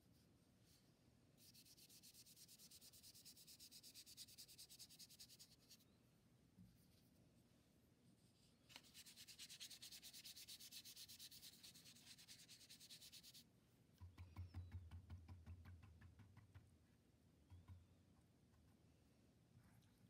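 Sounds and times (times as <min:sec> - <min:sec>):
paintbrush scrubbing on paper: 0:01.4 - 0:05.8, 0:08.7 - 0:13.4.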